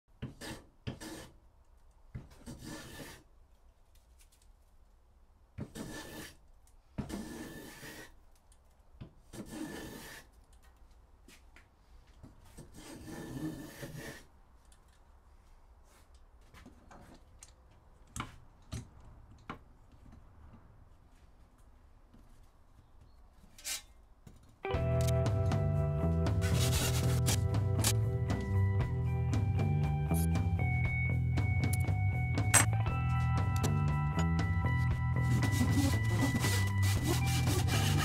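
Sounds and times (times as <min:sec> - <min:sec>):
hand plane shaving wood: 0:26.4 - 0:27.4, 0:35.2 - 0:38.0.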